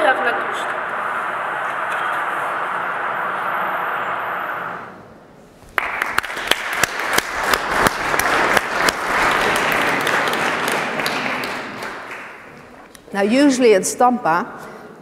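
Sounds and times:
audience applauding: 5.7 - 12.8.

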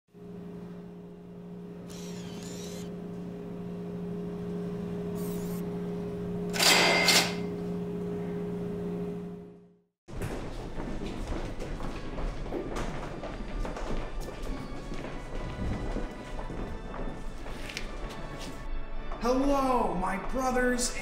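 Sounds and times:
machine hum: 0.1 - 13.8
clattery room noise: 0.2 - 18.6
bill acceptor whirring: 1.7 - 3.7, 4.7 - 7.8.

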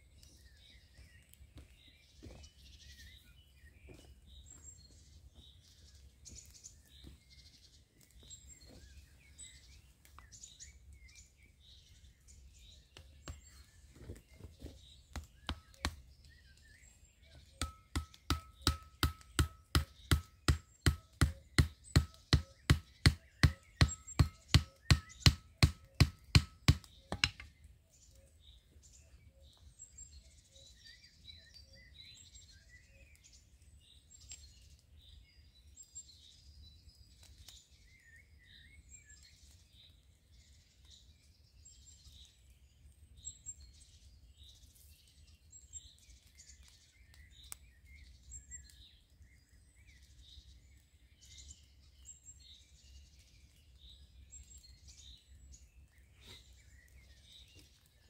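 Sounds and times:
birds chirping: 0.0 - 58.0
hatchet hammering a stake: 15.1 - 16.1, 17.4 - 27.6.

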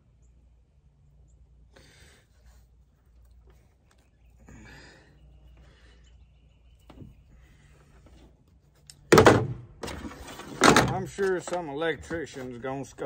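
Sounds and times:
faint steady hum: 0.0 - 10.1.

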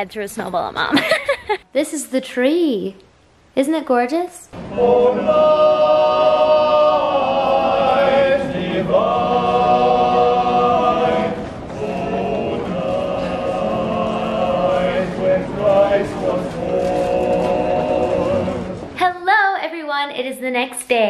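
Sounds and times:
men's choir singing in harmony: 4.6 - 19.0.

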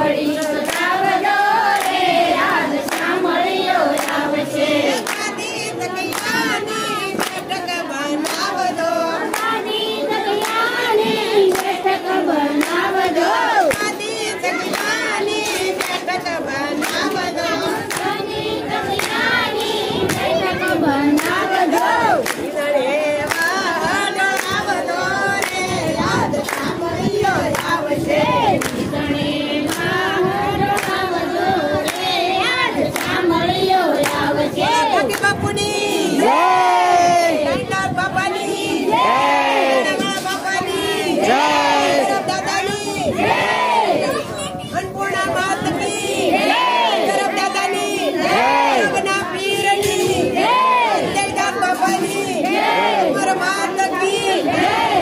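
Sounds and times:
women singing in unison: 0.0 - 55.0
hands clapping: 0.2 - 4.2, 4.8 - 8.6, 9.2 - 9.8, 10.4 - 11.8, 12.5 - 16.2, 16.8 - 18.2, 18.9 - 26.8, 27.4 - 27.8, 28.6 - 28.9, 29.6 - 30.0, 30.7 - 31.0, 31.8 - 32.1, 32.9 - 35.6.

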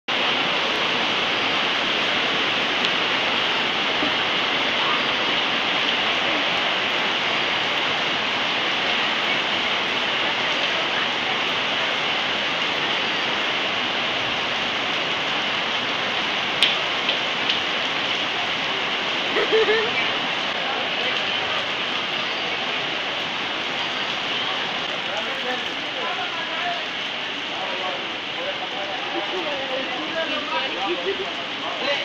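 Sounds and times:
heavy rain on a roof: 0.1 - 32.0
water pouring onto floor: 15.7 - 32.0.

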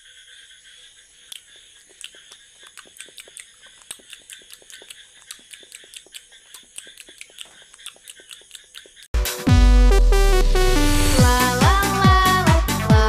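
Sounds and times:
mouth clicks and smacks: 1.2 - 9.1.

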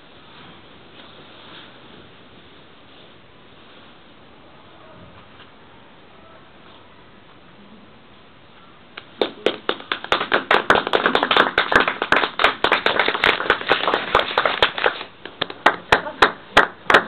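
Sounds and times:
audience applause: 9.2 - 17.0.

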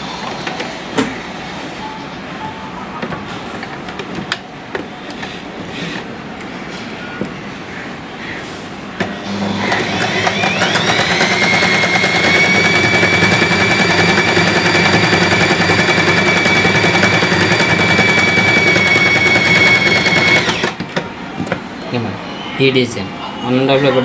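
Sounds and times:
sewing machine stitching: 9.3 - 20.8.

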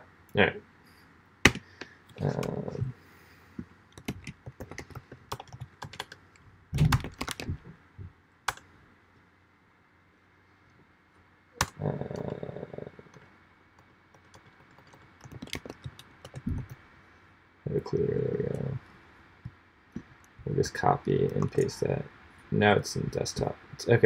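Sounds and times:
computer keyboard typing: 3.9 - 6.2, 6.8 - 7.6, 13.8 - 16.8, 21.2 - 21.7.

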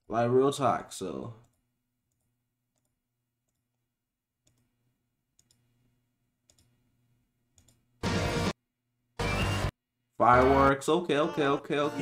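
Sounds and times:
computer mouse clicks: 5.4 - 5.6, 6.4 - 6.8, 7.6 - 7.8.

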